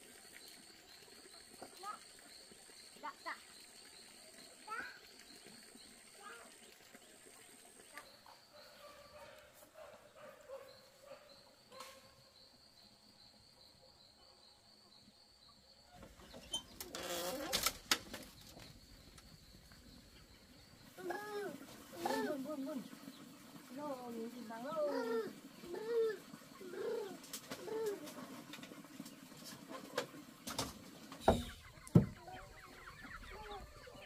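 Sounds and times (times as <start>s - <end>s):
sharp knocks: 31.2s - 32.2s.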